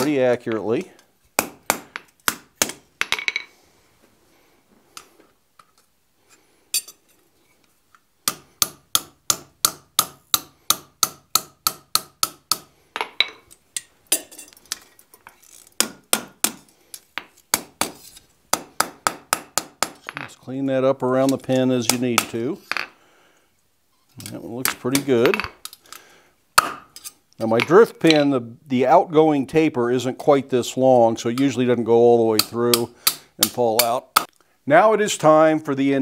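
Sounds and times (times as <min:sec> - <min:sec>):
hammer striking hot iron on anvil: 0:08.3 - 0:12.7.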